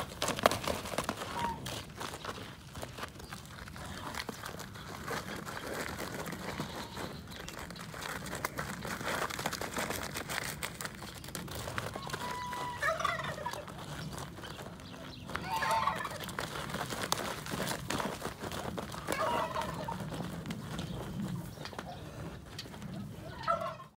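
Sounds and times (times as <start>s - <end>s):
hooves scuffing in loose dirt: 0.0s - 23.9s
fowl gobbling: 12.0s - 13.8s, 15.4s - 16.3s, 19.0s - 20.2s, 22.9s - 23.9s.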